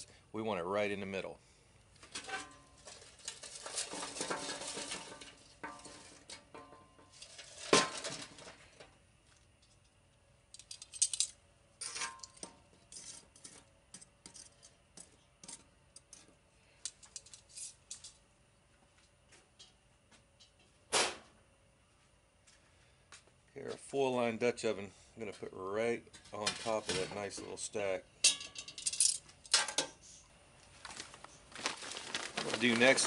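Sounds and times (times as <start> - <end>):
charcoal briquettes clinking: 2.0 - 9.9, 10.5 - 18.1, 26.1 - 30.0, 30.8 - 33.0.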